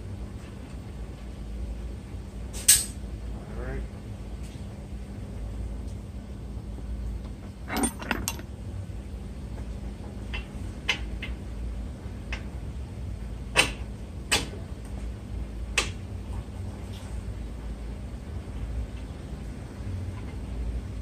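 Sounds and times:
metallic clinks of tools: 7.7s - 8.4s.

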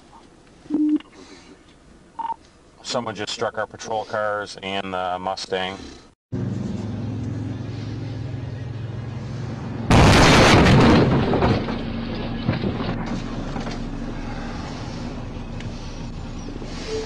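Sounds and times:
steady low hum: 6.7s - 17.0s
clattering debris: 9.9s - 14.0s
car crash: 9.9s - 14.2s.

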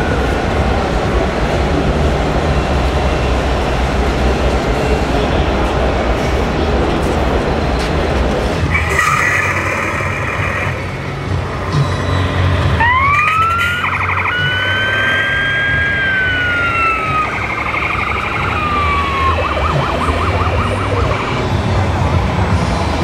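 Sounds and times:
electronic siren wailing and yelping: 8.7s - 11.0s, 12.8s - 21.4s.

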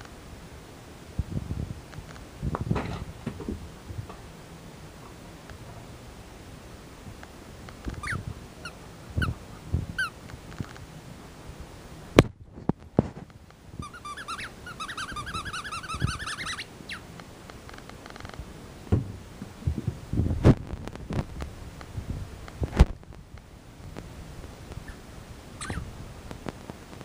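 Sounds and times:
puppy whining: 8.0s - 9.4s, 13.8s - 17.1s, 25.6s - 25.9s.

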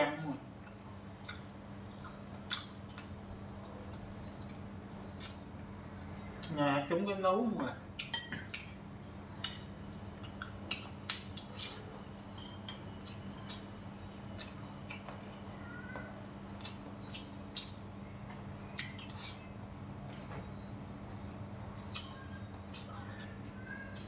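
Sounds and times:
steady low hum: 0.0s - 24.0s
soft chewing: 0.5s - 6.6s, 9.4s - 12.0s, 12.7s - 20.2s, 21.8s - 24.0s
spoon and chopsticks clinking bowl: 8.1s - 8.8s, 12.4s - 12.9s.

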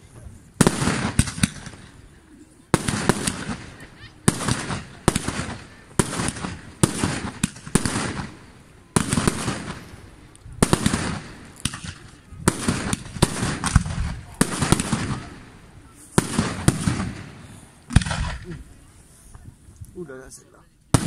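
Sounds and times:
firework shells bursting: 0.6s - 2.0s, 2.7s - 15.6s, 16.2s - 18.7s.

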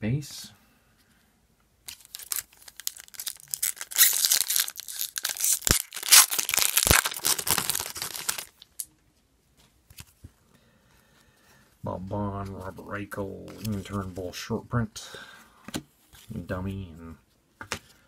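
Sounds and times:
foil wrapper crinkling: 1.9s - 8.8s.

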